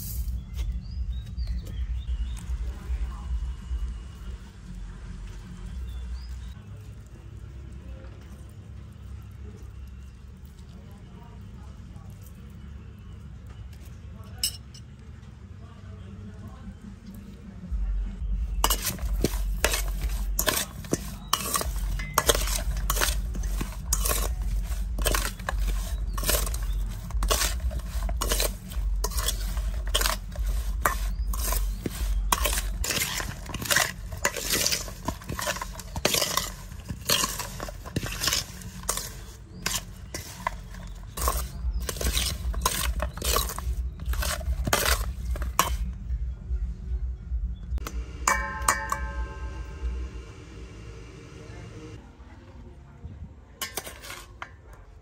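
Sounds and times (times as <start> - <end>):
food stirred in metal bowl: 0.0 - 14.7, 18.3 - 46.0, 47.8 - 49.6, 53.6 - 55.0.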